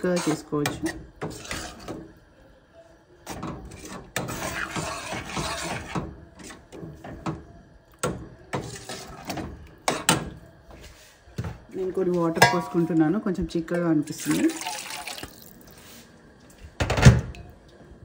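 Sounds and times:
spoon scraping metal pot: 0.0 - 2.2, 3.2 - 7.2, 8.5 - 10.2
spoon knocking against pot: 12.4 - 12.9.

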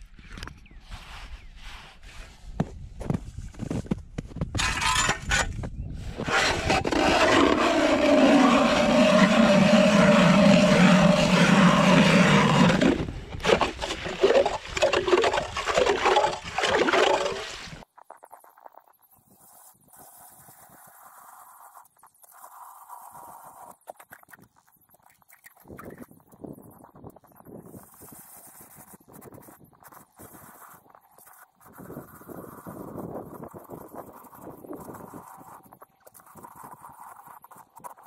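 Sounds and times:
ice shards scraping and knocking: 4.5 - 8.4, 11.0 - 17.6
ice auger grinding through ice: 4.6 - 5.5, 6.1 - 17.8.

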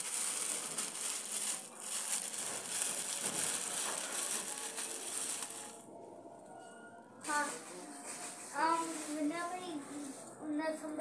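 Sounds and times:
cloth and petals rustling: 0.0 - 5.9, 7.2 - 11.0.

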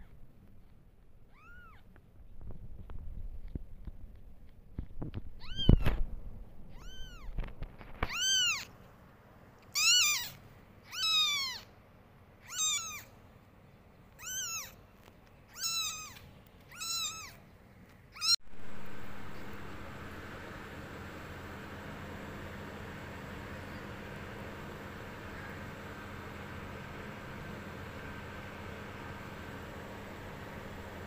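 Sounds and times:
kitten mewing: 5.4 - 6.0, 6.7 - 7.4, 8.0 - 8.7, 9.7 - 11.7, 12.4 - 13.1, 14.2 - 14.8, 15.5 - 17.4.

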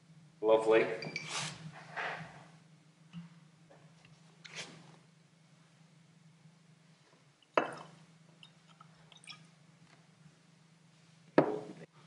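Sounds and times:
faint drips: 7.4 - 10.0
liquid pouring into a glass: 7.5 - 9.5.

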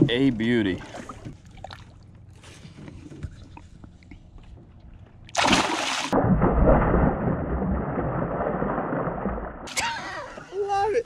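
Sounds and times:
water churning and sloshing: 0.3 - 10.6
water lapping: 0.5 - 4.3
fish splashing: 5.3 - 9.7.

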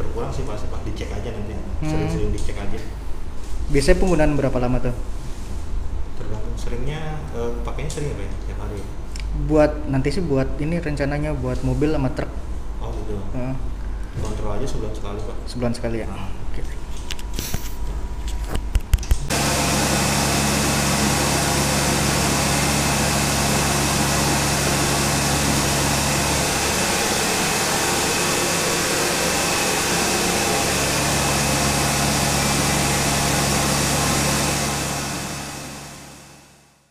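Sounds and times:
pressure washer running: 19.3 - 36.9.

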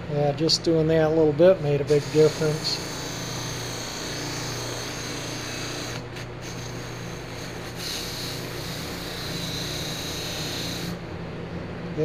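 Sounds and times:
bench buffer motor hum: 0.0 - 12.0
metal trim rubbing on buffing wheel: 1.9 - 11.0.

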